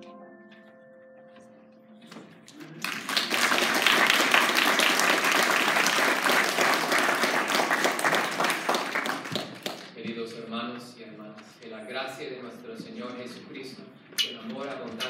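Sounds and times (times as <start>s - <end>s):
crowd applauding: 2.5s - 10.0s.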